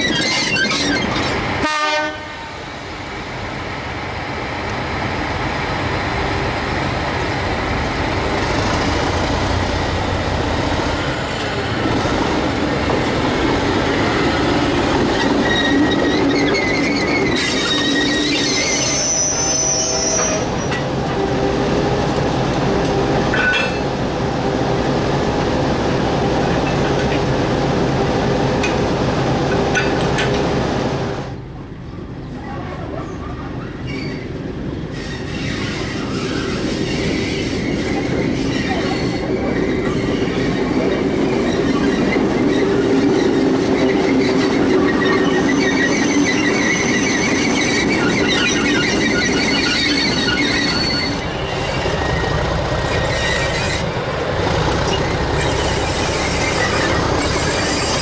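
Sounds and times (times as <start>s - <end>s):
steel wheels squealing: 0.0s - 1.4s, 15.1s - 20.8s, 34.9s - 54.0s, 54.7s - 58.0s
diesel locomotive running: 0.0s - 58.0s.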